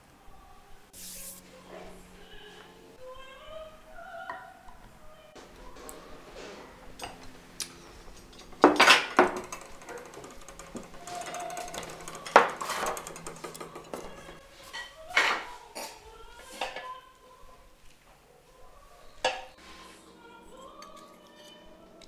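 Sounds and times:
dishes and cutlery clinking: 5.7 - 17.0, 19.2 - 19.6, 20.5 - 22.0.

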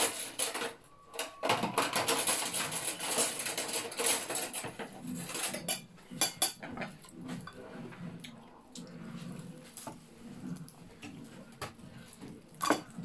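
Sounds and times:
cutlery scraping a ceramic plate: 0.0 - 8.0
close-up chewing: 5.0 - 13.0.

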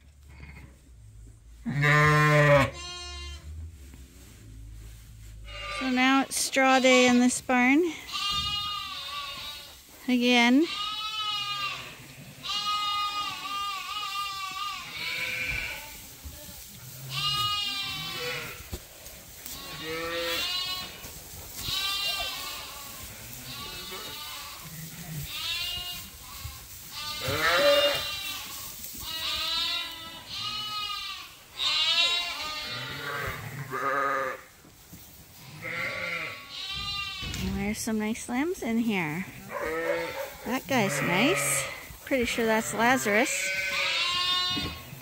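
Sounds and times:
sheep and lambs bleating: 1.6 - 3.5, 5.4 - 18.8, 19.4 - 34.6, 35.4 - 45.0.

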